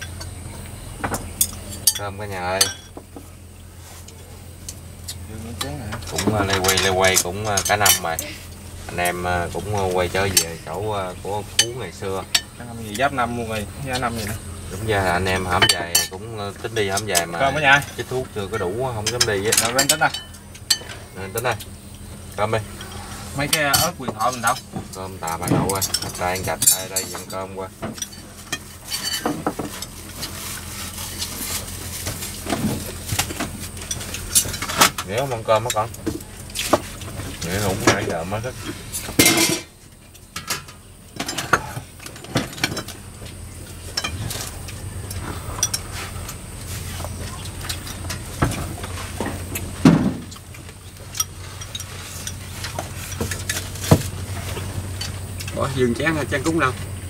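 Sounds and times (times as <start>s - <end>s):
steady low hum: 0.0s - 57.0s
dishes and chopsticks clinking: 5.9s - 8.2s, 15.2s - 21.5s, 22.8s - 30.4s, 38.7s - 39.7s.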